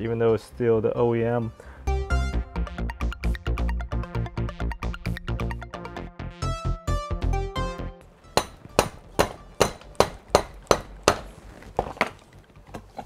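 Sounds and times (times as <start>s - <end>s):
electronic background music: 0.0s - 11.1s
mallet striking metal pulley: 8.4s - 11.2s.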